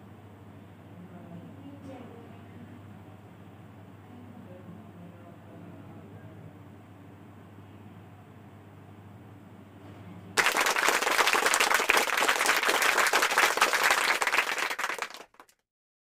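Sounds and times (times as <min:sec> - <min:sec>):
faint low hum: 0:00.0 - 0:15.4
crowd applause: 0:10.4 - 0:15.6.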